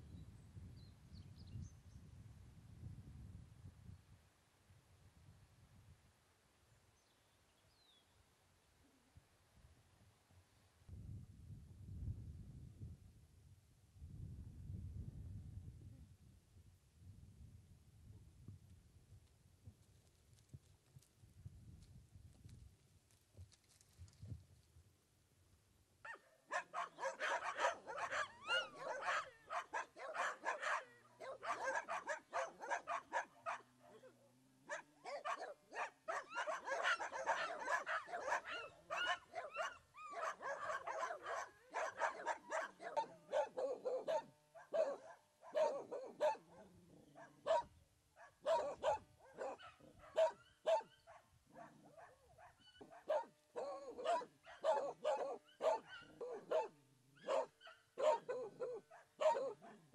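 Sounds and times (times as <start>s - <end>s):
dogs barking: 26.1s - 34.0s, 34.6s - 59.9s.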